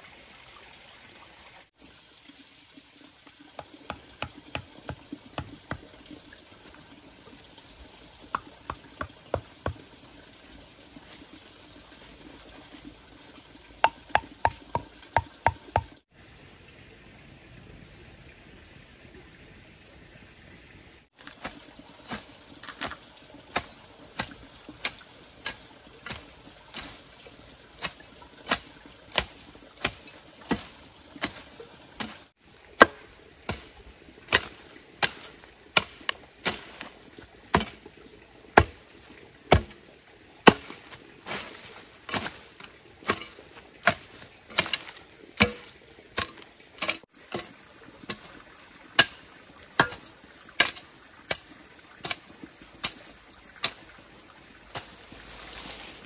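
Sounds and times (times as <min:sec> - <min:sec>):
blade chopping bamboo: 0:13.8 - 0:16.0, 0:21.2 - 0:27.0, 0:27.8 - 0:36.9, 0:37.5 - 0:37.8, 0:38.6 - 0:38.8, 0:39.5 - 0:39.8, 0:40.4 - 0:41.4, 0:42.1 - 0:47.5, 0:49.0 - 0:49.2, 0:49.8 - 0:50.0
high insect drone: 0:29.2 - 0:48.6.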